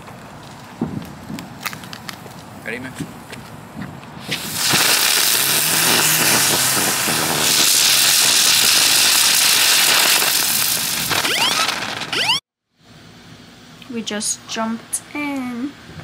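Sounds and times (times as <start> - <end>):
firework hissing and crackling: 4.2 - 12.4
firework whistles: 4.2 - 12.4.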